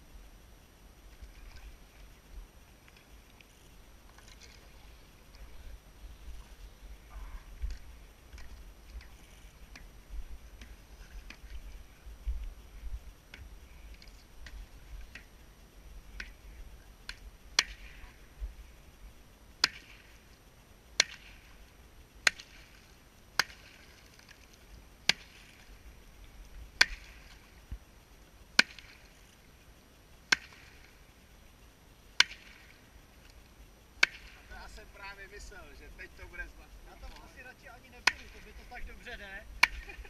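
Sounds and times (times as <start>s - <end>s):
stick striking ice cracking: 19.6s - 20.0s, 21.0s - 21.4s, 22.2s - 22.6s, 23.4s - 23.7s, 25.1s - 25.5s, 26.8s - 27.2s, 28.6s - 29.0s, 30.3s - 30.6s, 32.2s - 32.6s, 34.0s - 34.4s, 38.0s - 38.4s.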